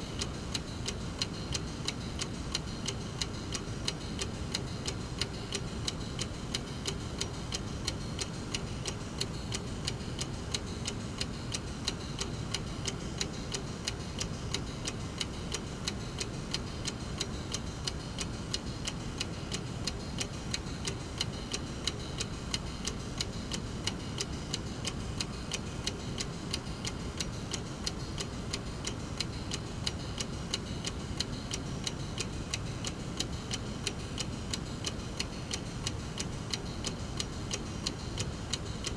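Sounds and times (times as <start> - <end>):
clock ticking: 0.1 - 38.9.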